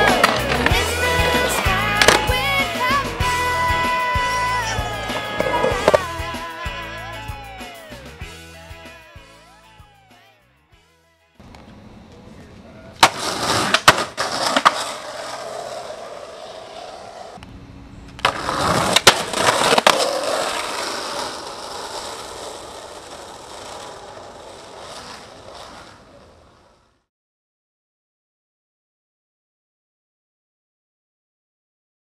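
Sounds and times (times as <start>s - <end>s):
skateboard clacks: 0.0s - 2.8s, 5.0s - 6.2s, 13.0s - 17.4s, 18.1s - 26.8s
skateboard wheels rolling: 0.0s - 7.4s, 11.4s - 27.1s.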